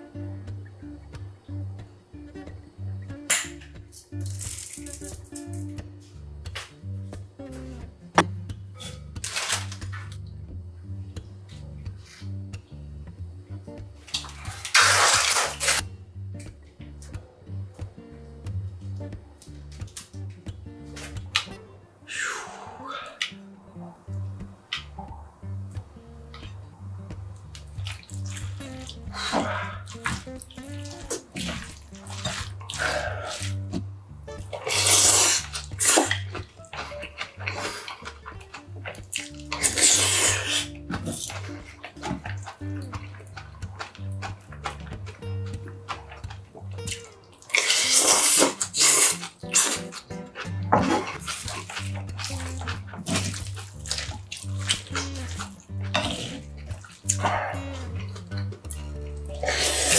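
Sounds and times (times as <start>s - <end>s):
music with steady bass beat: 0.0s - 15.0s, 15.6s - 21.9s, 23.4s - 47.6s, 48.5s - 59.9s
wet squelching of mixed rice: 27.6s - 33.8s, 34.5s - 45.2s, 45.9s - 58.5s
wooden spoon mixing in bowl: 50.8s - 56.0s.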